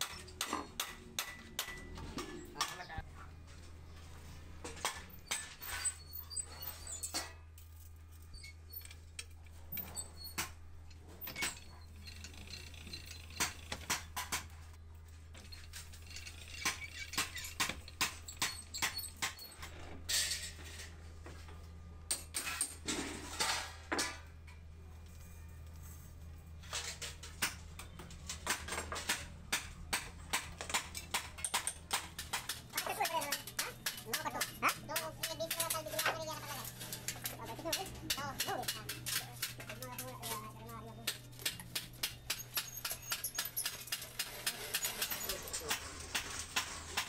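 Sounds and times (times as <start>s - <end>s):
metal cylinders clinking: 30.3s - 47.0s.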